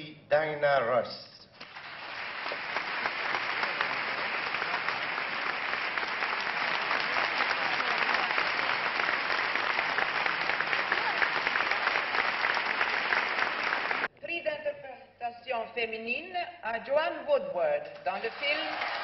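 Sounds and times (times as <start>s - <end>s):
crowd clapping: 1.6s - 14.1s, 18.0s - 19.0s.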